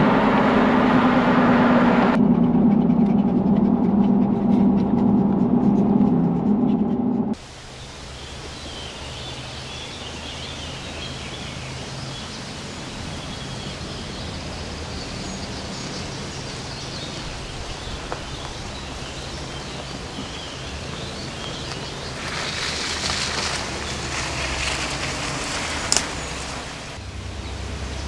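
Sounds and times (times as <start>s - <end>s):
low rumble: 0.0s - 7.4s.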